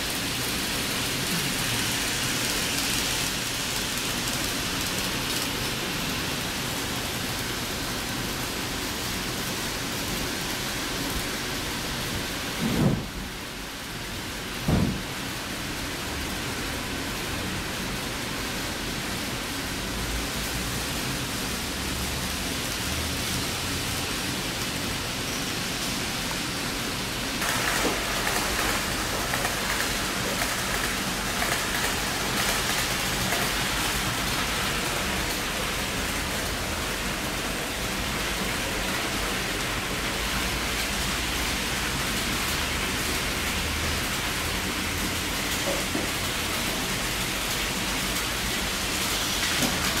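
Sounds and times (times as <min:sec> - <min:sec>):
model train wheels rattling: 0:00.0 - 0:07.8, 0:27.4 - 0:36.1.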